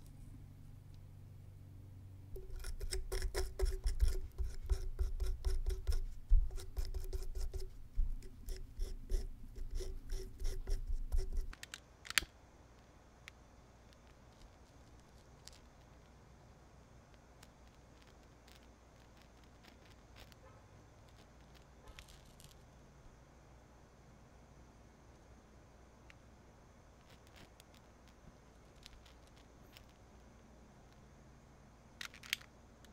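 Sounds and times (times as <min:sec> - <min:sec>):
knife scraping cardboard: 0:02.4 - 0:11.5.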